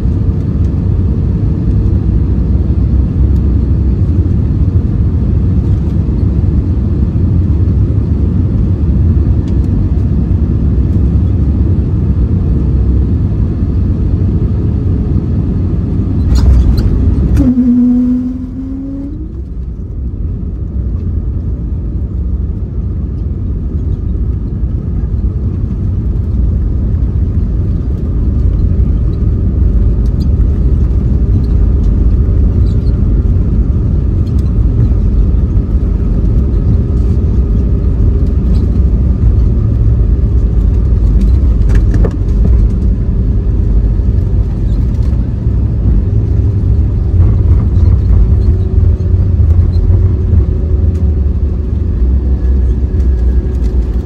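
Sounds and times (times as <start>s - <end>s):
wheels and engines rumbling on runway: 0.0s - 54.0s.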